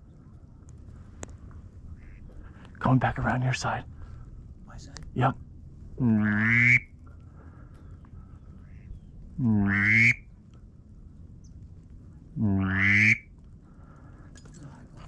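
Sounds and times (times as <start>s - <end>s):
duck call quacks: 6.2s - 6.9s, 9.6s - 10.2s, 12.5s - 13.2s.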